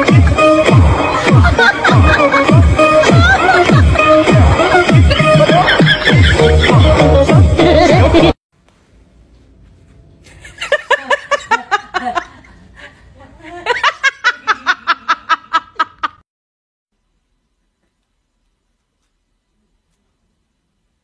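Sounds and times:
person laughing: 0:00.0 - 0:08.4, 0:10.3 - 0:16.2.

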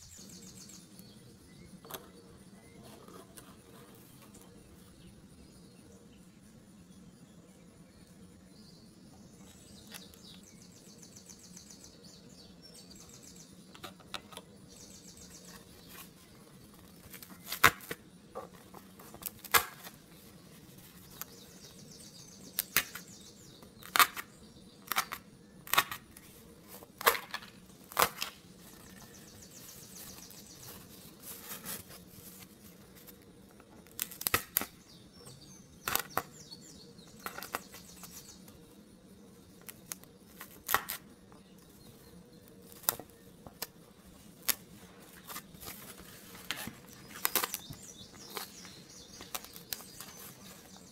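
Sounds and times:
cardboard pieces snapping: 0:17.0 - 0:18.0, 0:18.8 - 0:20.0, 0:23.8 - 0:26.0, 0:26.9 - 0:28.4, 0:33.8 - 0:34.7, 0:39.8 - 0:41.0, 0:45.3 - 0:48.6.

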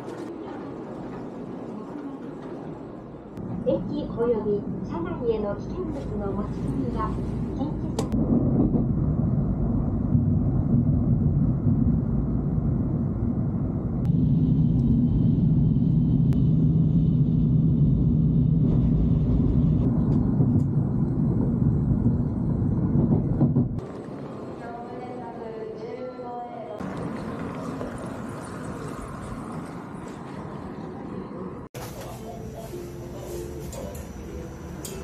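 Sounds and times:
train cabin rumble: 0:00.0 - 0:24.8.

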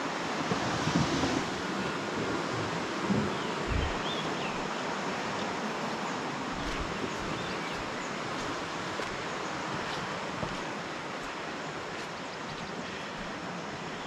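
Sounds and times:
steady rushing outdoor noise: 0:00.0 - 0:14.0
wind bump on microphone: 0:02.4 - 0:04.7.

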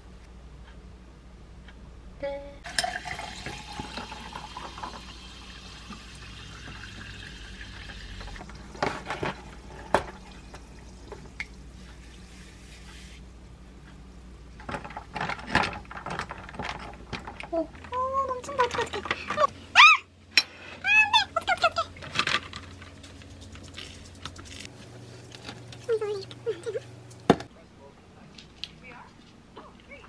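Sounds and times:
carbonation fizzing: 0:02.6 - 0:12.6, 0:22.4 - 0:27.3
water pouring into glass: 0:02.7 - 0:08.3.

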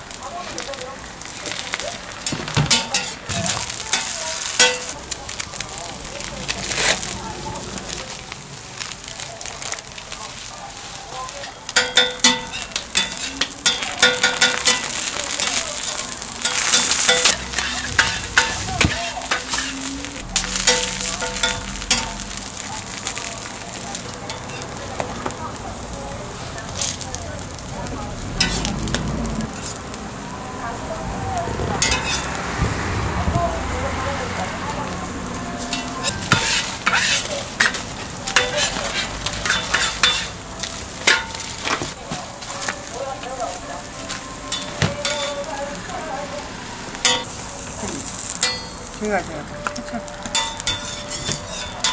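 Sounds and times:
food sizzling on griddle: 0:00.0 - 0:51.9
metal spatula scraping griddle: 0:01.7 - 0:05.0, 0:06.5 - 0:07.2, 0:10.8 - 0:24.8, 0:28.4 - 0:29.9, 0:31.8 - 0:32.4, 0:35.6 - 0:43.0, 0:44.1 - 0:45.7, 0:49.9 - 0:51.9.

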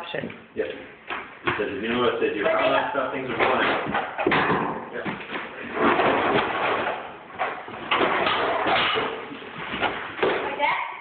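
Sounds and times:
plaster scraping and crumbling: 0:01.5 - 0:10.6
plaster pieces knocking and falling: 0:02.4 - 0:10.6.

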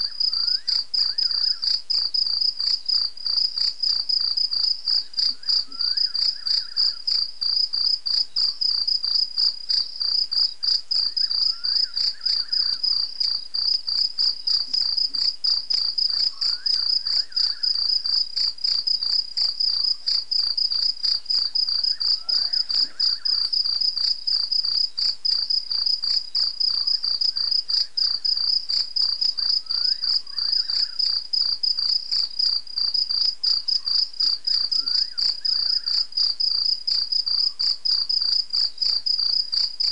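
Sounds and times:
crickets chirping: 0:00.0 - 0:39.9
low insect call: 0:00.0 - 0:39.9.

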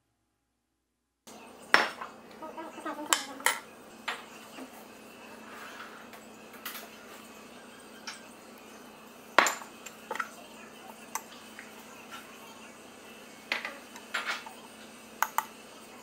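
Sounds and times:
ceramic dishes clinking: 0:03.0 - 0:04.3, 0:08.0 - 0:08.4, 0:09.4 - 0:10.4, 0:13.5 - 0:15.5.

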